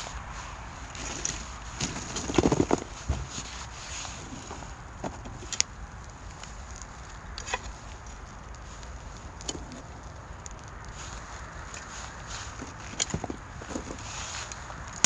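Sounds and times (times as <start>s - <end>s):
burning pine cones popping: 0.0s - 15.0s
fire hissing: 0.0s - 15.0s.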